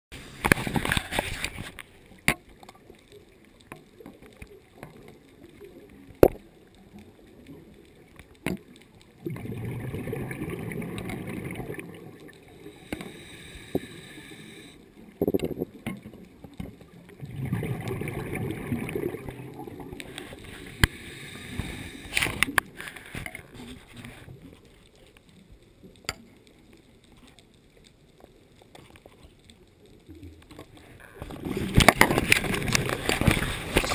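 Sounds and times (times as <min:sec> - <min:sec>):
diver exhaling bubbles: 0:09.2 - 0:14.4, 0:17.2 - 0:22.6
hiss of inhalation: 0:12.5 - 0:14.9, 0:20.2 - 0:23.3.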